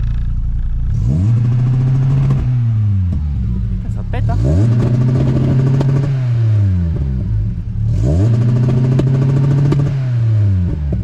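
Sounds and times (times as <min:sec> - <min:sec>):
rev limiter crackling pops: 0:00.0 - 0:03.5
car engine revving: 0:00.0 - 0:11.0.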